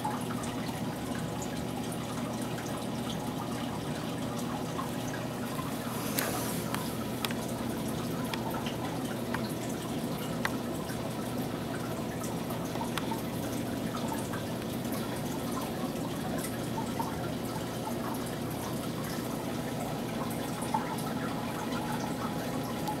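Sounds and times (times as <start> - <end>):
water trickling and dripping: 0.0 - 23.0.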